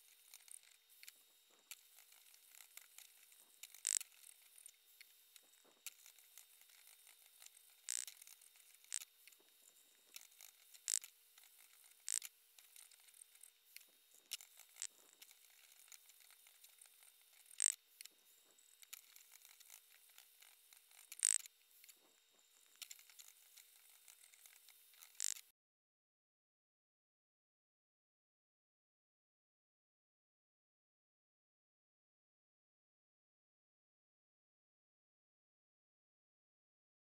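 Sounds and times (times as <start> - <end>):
faint steady hum: 0.0 - 25.5.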